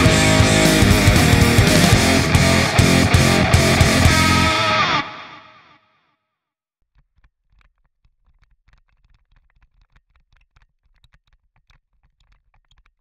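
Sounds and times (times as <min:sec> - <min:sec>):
low rumble: 0:00.0 - 0:04.6.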